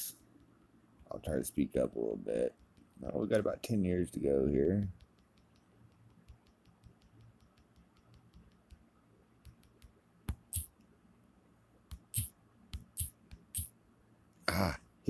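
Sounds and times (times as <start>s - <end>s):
fingertip taps on touchscreen: 4.5s - 8.8s, 9.4s - 10.7s, 11.9s - 13.7s.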